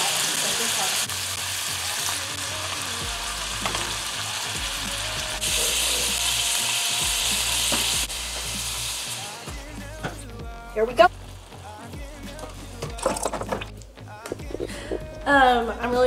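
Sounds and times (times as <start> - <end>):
food sizzling in a pot: 0.0 - 13.0.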